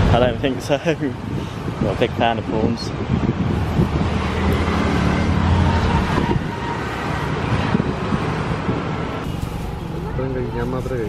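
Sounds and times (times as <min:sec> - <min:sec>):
road traffic noise: 0:00.0 - 0:11.0.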